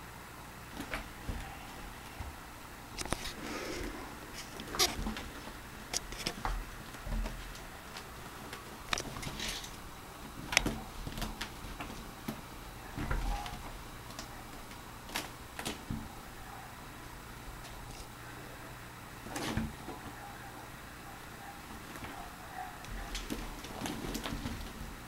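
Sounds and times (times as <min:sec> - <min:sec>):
kittens clawing at curtain: 0:00.7 - 0:18.3, 0:19.2 - 0:25.0.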